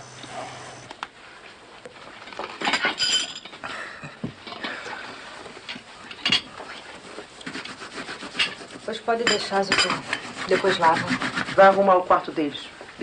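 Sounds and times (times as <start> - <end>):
dishes and silverware clinking: 2.3 - 3.6, 6.1 - 6.5, 9.2 - 10.0.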